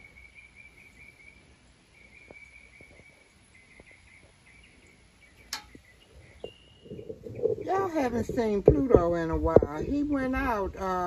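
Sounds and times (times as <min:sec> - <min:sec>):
high thin insect call: 0:00.0 - 0:08.5.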